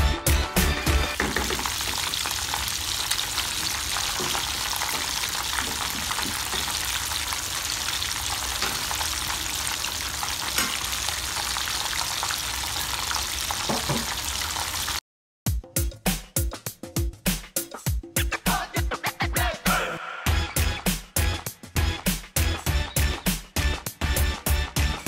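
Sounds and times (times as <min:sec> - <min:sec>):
chicken deep-frying in oil: 0:00.6 - 0:15.0.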